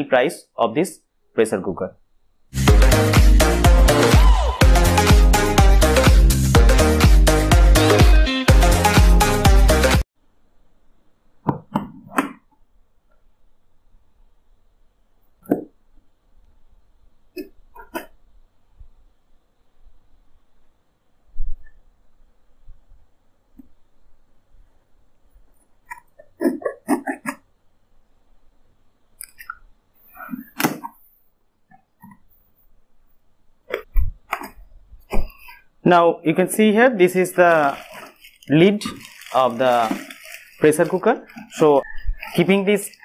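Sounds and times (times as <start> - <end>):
electronic music: 2.6 - 10.0.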